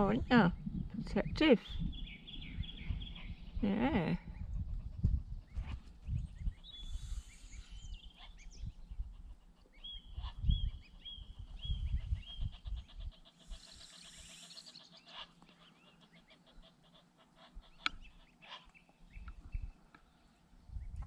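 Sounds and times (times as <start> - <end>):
wind rumbling on microphone: 0.0 - 14.4, 19.1 - 19.8, 20.6 - 21.0
birds calling with high peeps: 0.0 - 21.0.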